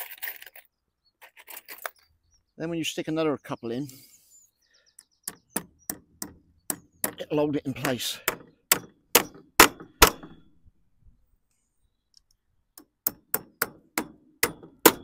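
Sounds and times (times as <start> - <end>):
hammer hitting nails in metal plate: 8.2 - 10.4, 12.8 - 15.0.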